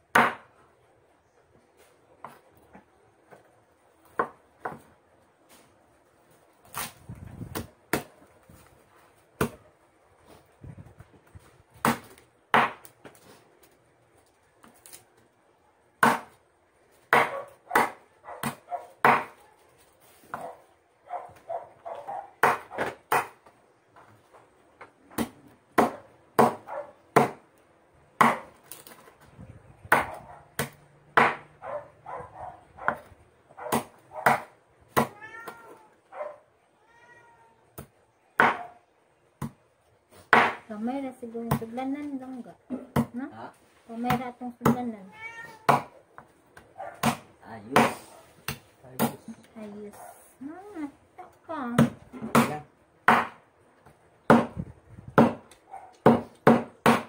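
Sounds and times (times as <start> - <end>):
knife chopping on wooden board: 29.9 - 31.5, 37.8 - 38.6, 40.3 - 40.6, 47.0 - 49.2, 51.8 - 53.4, 55.2 - 57.0
cat meowing: 35.0 - 36.1, 36.8 - 37.7, 45.0 - 45.8.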